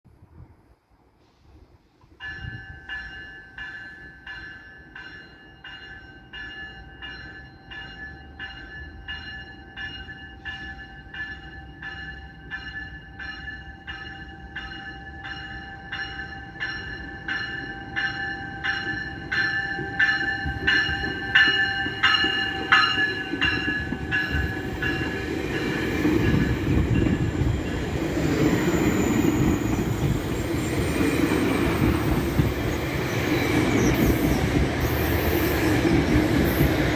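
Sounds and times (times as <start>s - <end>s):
train rumble: 0.1s - 36.9s
locomotive bell ringing: 2.2s - 30.5s
high squeal: 28.4s - 35.6s.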